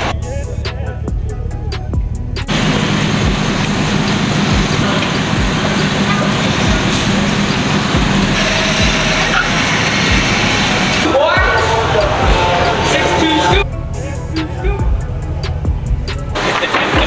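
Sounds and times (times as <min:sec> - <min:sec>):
music with kick-drum beat: 0:00.0 - 0:02.5, 0:13.5 - 0:17.0
pickup truck engine rumble: 0:00.0 - 0:17.0.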